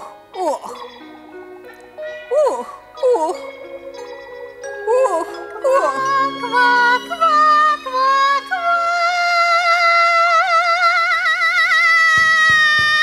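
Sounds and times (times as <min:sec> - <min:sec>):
light musical accompaniment: 0:00.0 - 0:13.0
wordless singing with vibrato: 0:04.9 - 0:13.0.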